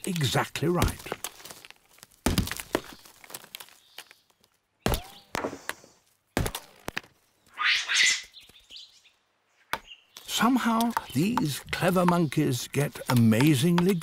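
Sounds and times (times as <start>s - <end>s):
stone hammer knocking on rock: 10.9s - 12.4s.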